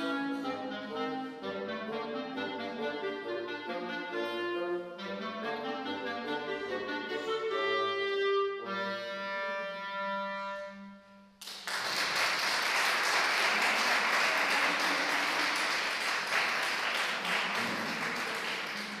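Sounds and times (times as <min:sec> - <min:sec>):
clarinet and bassoon notes: 0:00.0 - 0:11.3
audience applauding: 0:11.4 - 0:19.0.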